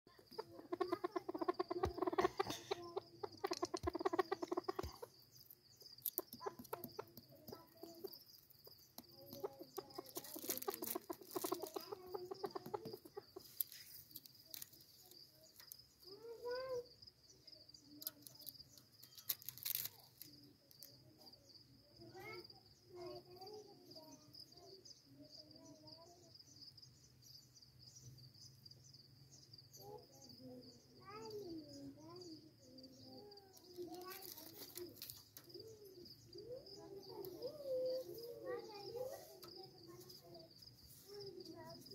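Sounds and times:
partridge clucking calls: 0.1 - 15.8.

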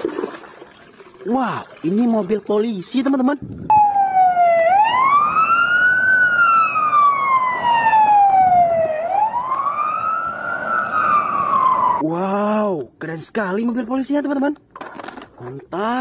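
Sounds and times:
electronic siren wailing: 3.7 - 12.0.

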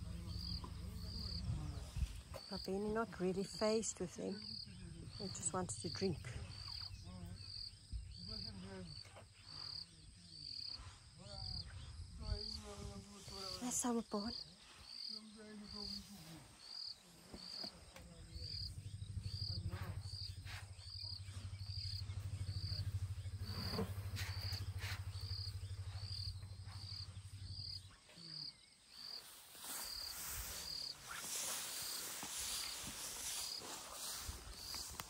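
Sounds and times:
elephants low rumble: 0.0 - 2.5, 15.6 - 35.0
insect chirping: 0.0 - 35.0.

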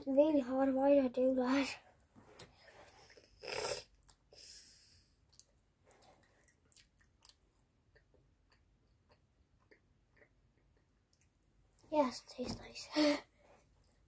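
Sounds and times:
chewing hard food: 5.2 - 11.4.

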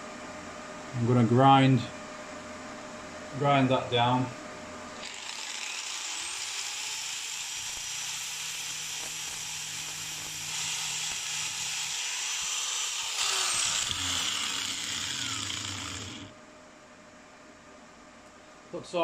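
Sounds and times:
angle grinder grinding steel: 5.0 - 16.3.

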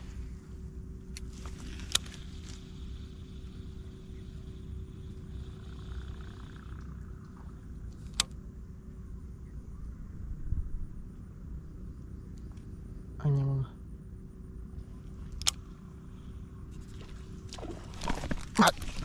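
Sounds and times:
fishing reel whirring: 1.2 - 8.3.

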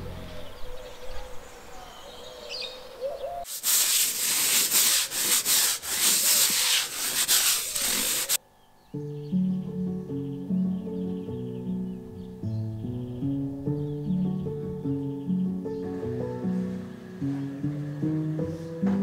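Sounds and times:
floor brush scrubbing wet floor: 3.5 - 8.4
background music: 9.0 - 19.0.

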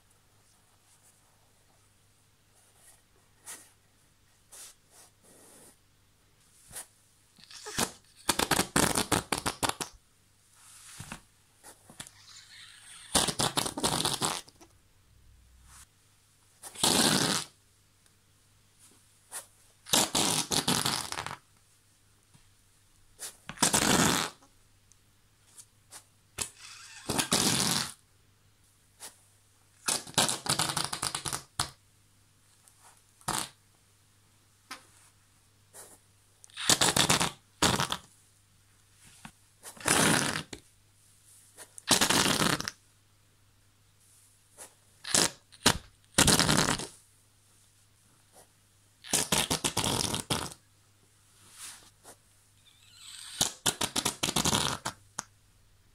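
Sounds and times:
whoopee cushion fart noises: 7.5 - 9.9, 12.0 - 14.6, 16.8 - 17.6, 19.9 - 21.4, 23.6 - 24.4, 26.4 - 28.0, 33.2 - 33.6, 36.6 - 38.1, 39.8 - 40.6, 41.9 - 42.8, 45.1 - 47.0, 49.1 - 50.6, 52.9 - 55.0.

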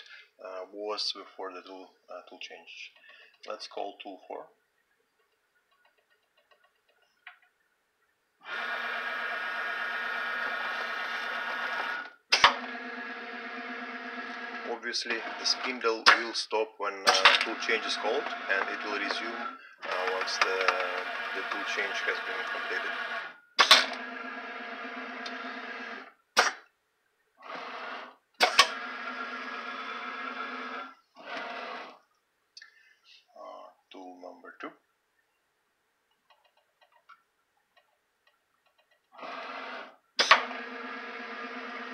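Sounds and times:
machine drive whine: 5.2 - 26.2
sharp machine clunk: 12.3 - 12.7, 16.0 - 16.3, 17.0 - 17.6, 23.6 - 24.0, 28.4 - 28.8, 40.2 - 40.6
axis motors moving: 14.2 - 16.3, 17.1 - 25.4.

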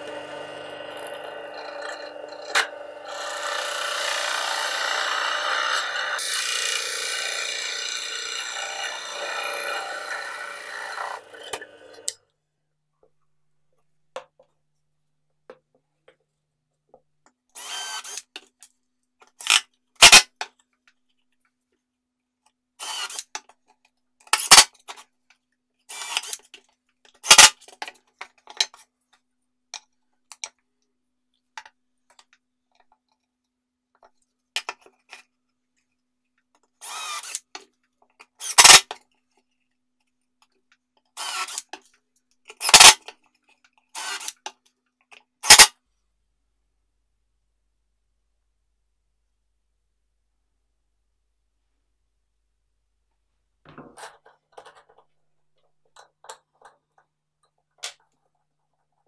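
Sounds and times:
cordless drill driving screws: 0.0 - 12.1, 17.6 - 18.2, 22.8 - 23.3, 36.8 - 37.4, 41.2 - 41.7, 44.0 - 44.4.

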